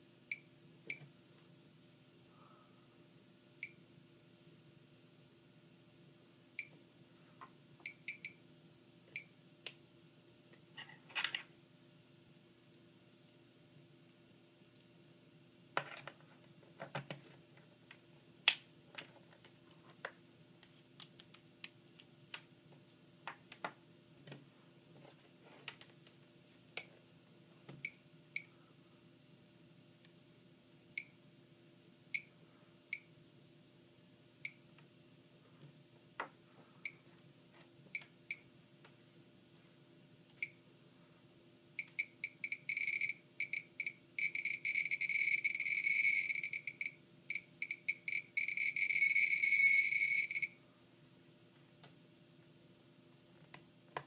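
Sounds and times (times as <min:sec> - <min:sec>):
geiger counter chirping: 0:41.8 - 0:50.6.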